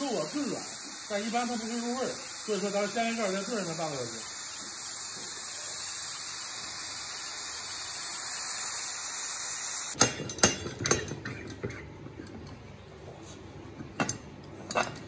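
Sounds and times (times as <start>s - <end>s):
pressure cooker steam hissing: 0.0s - 10.0s
metal lid clicks and clanks: 10.0s - 11.8s, 14.0s - 15.0s.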